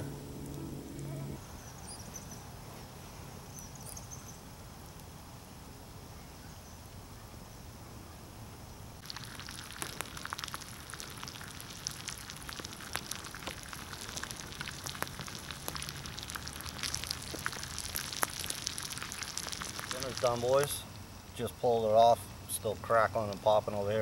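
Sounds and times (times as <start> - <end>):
oil crackling and popping: 9.0 - 20.8
food frying in hot oil: 9.0 - 21.5.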